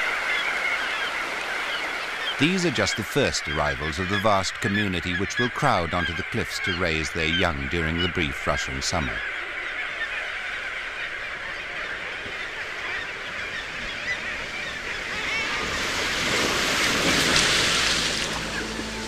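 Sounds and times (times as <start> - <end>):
surf washing: 0.0 - 9.2, 11.1 - 19.0
seabird colony calling: 0.0 - 19.0.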